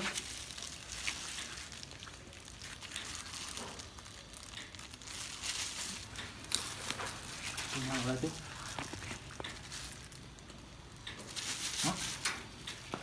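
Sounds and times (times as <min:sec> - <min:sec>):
plastic gloves rustling: 0:00.0 - 0:13.0
small crackles: 0:00.0 - 0:13.0.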